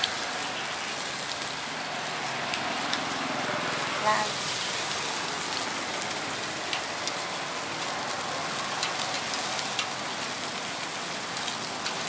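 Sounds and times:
meat sizzling on a grill: 0.0s - 12.0s
crackles and pops: 8.2s - 12.0s.

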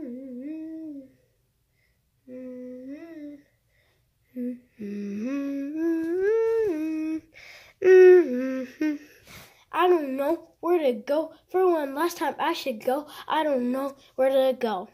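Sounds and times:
boy humming: 0.0s - 1.2s, 2.2s - 3.6s, 4.3s - 9.5s.

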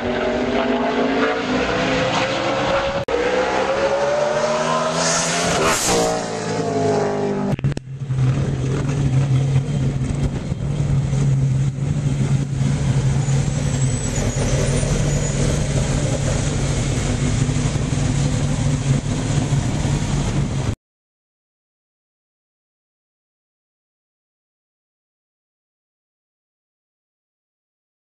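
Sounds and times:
stock car passing: 0.0s - 20.7s
car engine idling: 7.6s - 20.7s.

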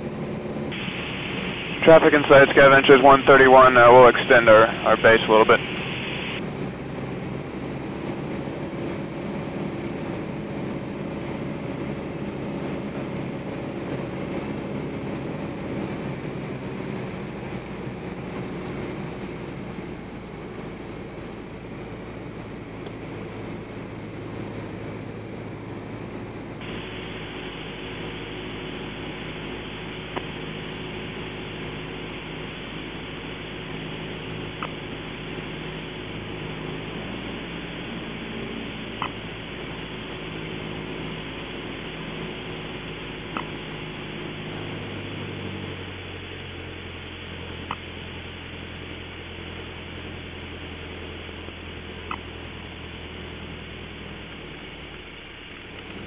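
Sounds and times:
light aircraft engine drone: 0.0s - 56.0s
faint click: 30.1s - 30.3s, 43.3s - 43.5s.

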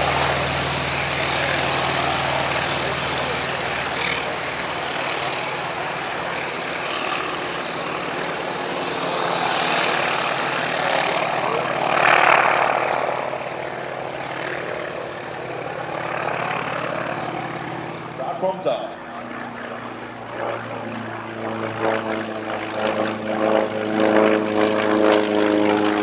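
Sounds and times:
propeller aircraft engine: 0.0s - 26.0s.

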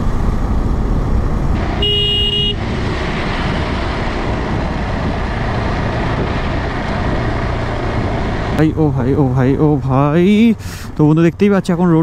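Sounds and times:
wind and road noise: 0.0s - 12.0s
short horn beep: 1.8s - 2.6s.

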